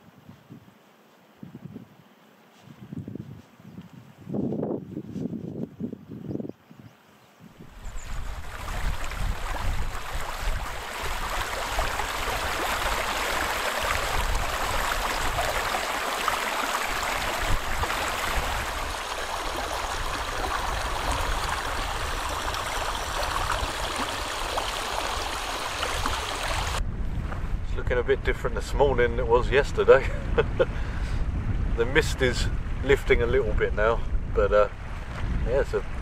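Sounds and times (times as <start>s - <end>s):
river water rushing over rocks: 8.4s - 26.8s.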